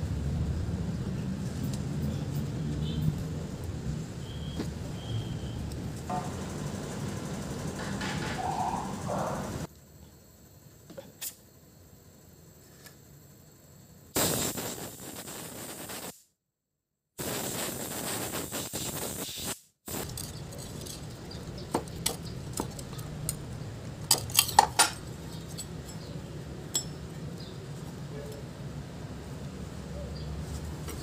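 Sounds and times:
compressed air blow gun hissing: 14.2 - 16.3, 17.2 - 20.4
metallic clinks and knocks: 20.0 - 23.4, 24.0 - 27.3.

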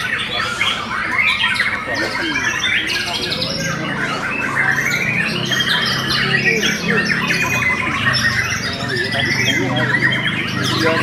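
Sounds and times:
birds singing in chorus: 0.0 - 11.0.

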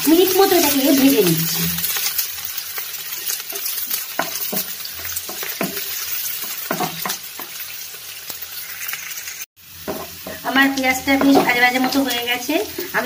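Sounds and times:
food sizzling in oil: 0.0 - 13.0
spatula scraping and tapping pan: 1.9 - 7.6, 9.8 - 12.2.

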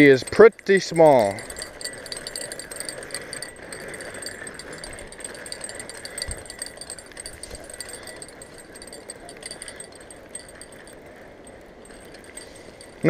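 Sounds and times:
fishing reel ticking: 0.0 - 13.0.

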